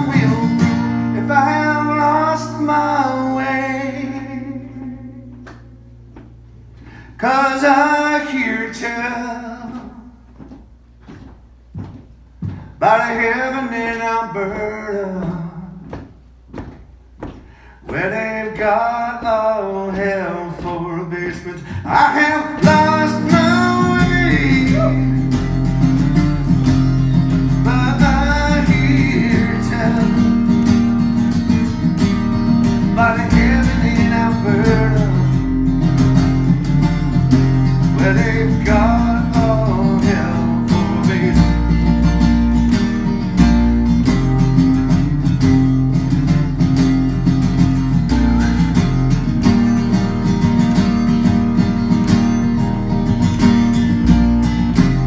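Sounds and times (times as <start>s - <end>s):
amplified acoustic guitar: 0.0s - 55.0s
deep bass notes: 22.6s - 55.0s.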